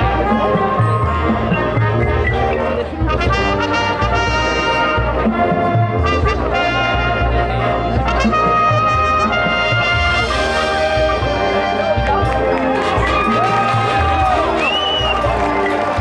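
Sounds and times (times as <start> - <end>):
brass section loud chords: 0.0 - 16.0.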